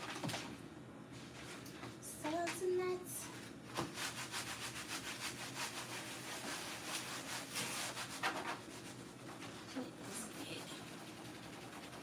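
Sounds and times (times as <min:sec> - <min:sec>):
cloth wiping refrigerator door: 0:03.2 - 0:12.0.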